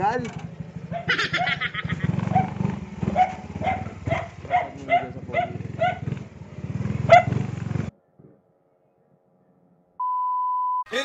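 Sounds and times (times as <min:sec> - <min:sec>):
motorcycle engine running: 0:00.0 - 0:07.9
dog barking: 0:00.9 - 0:01.6, 0:02.3 - 0:07.5.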